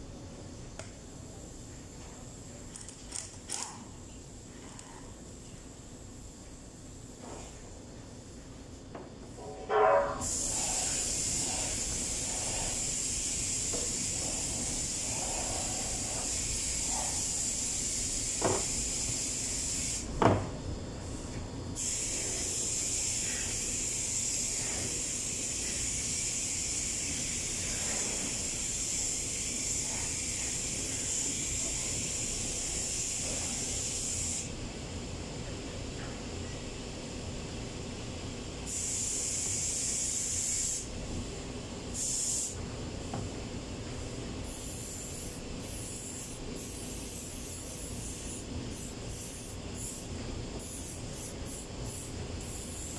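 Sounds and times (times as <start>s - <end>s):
steady high hiss: 10.2s - 52.9s.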